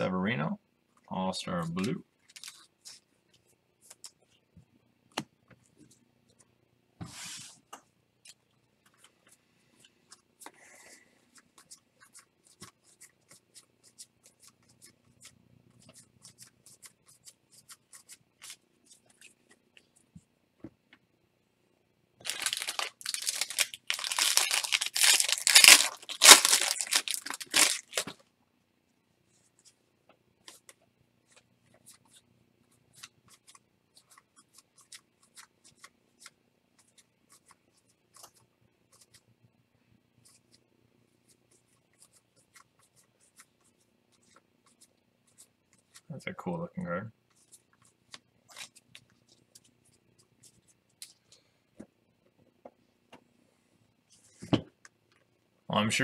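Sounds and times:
wrapper ripping and crinkling: 22.2s - 28.2s.

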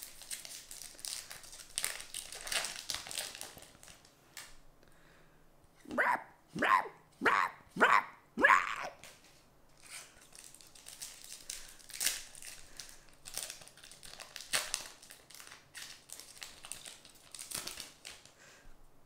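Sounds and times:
foil wrapper crinkling: 0.0s - 4.6s, 9.0s - 18.4s.

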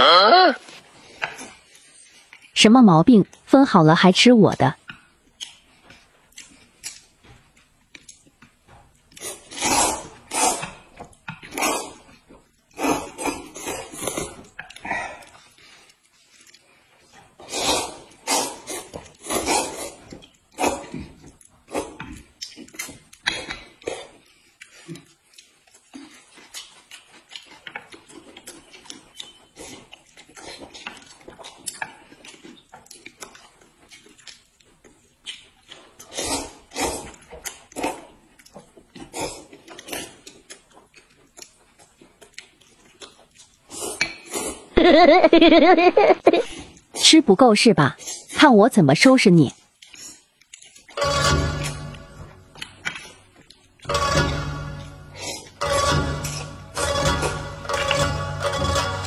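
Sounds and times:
food chewing: 0.6s - 2.6s, 4.7s - 44.8s, 46.4s - 47.0s, 49.5s - 55.7s
eating clicks and smacks: 4.8s - 44.7s, 49.6s - 51.0s
noodles being slurped: 9.2s - 10.9s.

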